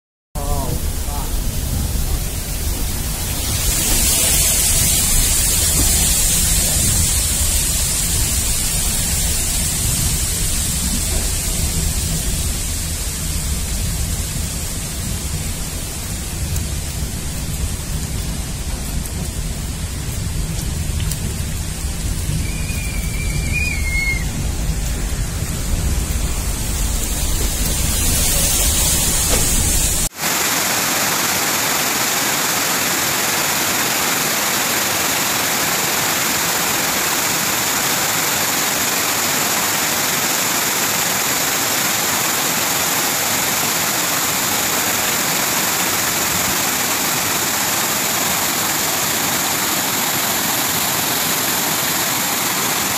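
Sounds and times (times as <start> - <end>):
deep rumble: 0.4 - 30.1
heavy rain and pouring water: 0.4 - 52.9
brief high whistle: 22.4 - 24.3.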